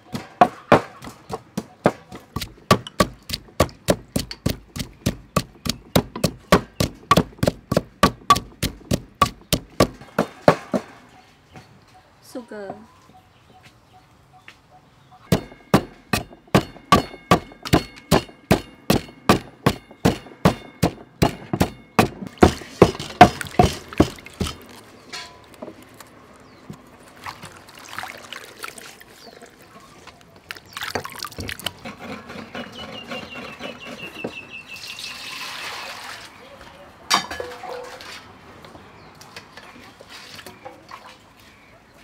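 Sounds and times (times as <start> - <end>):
pestle pounding in a clay mortar: 0.0 - 10.9, 15.3 - 24.8
water splashing in a steel basin: 22.3 - 31.9, 34.9 - 36.4, 39.6 - 41.4.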